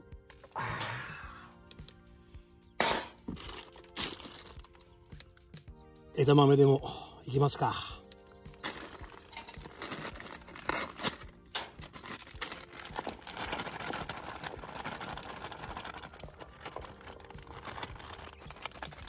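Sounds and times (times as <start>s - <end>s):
plastic bag crinkling: 3.3s - 5.0s, 8.5s - 19.0s.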